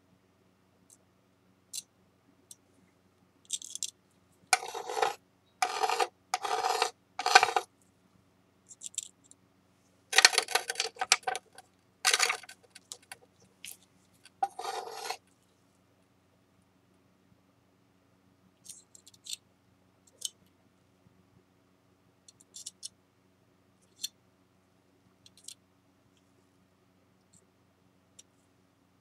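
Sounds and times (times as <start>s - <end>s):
metal spatula scraping on glass: 4.6s - 7.7s, 10.2s - 13.2s, 14.4s - 15.2s.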